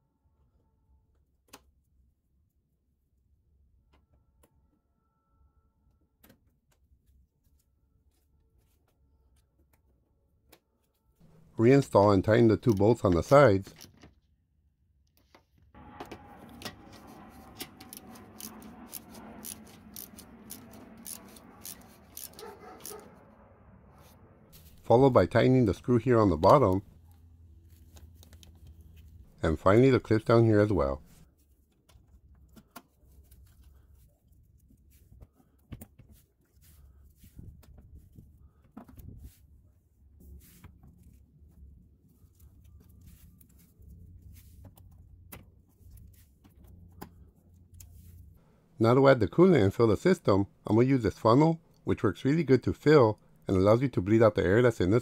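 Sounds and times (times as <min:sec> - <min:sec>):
low rumble: 0:15.8 - 0:26.2.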